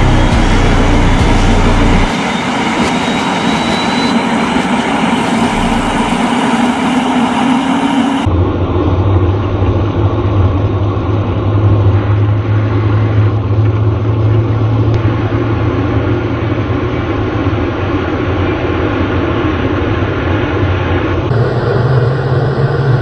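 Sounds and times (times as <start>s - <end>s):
jet engine deep rumble: 0.0s - 23.0s.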